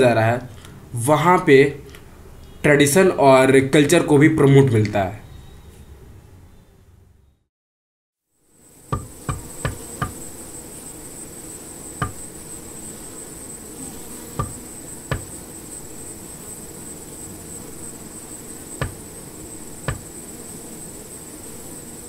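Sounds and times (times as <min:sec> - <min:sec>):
high-pitched insect trill: 0:08.4 - 0:22.0.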